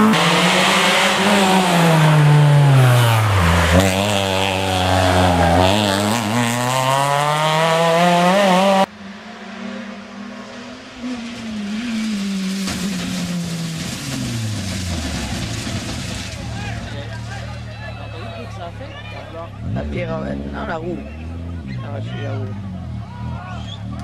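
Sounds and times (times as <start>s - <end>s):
distant rally car shifting gears: 0.0s - 24.0s
rally car engine accelerating: 0.0s - 24.0s.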